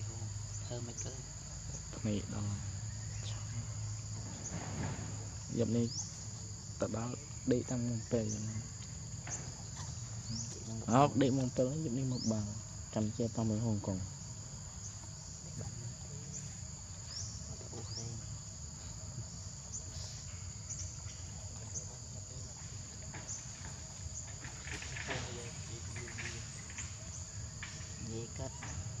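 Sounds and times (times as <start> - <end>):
insects chirping and whining: 0.0 - 29.0.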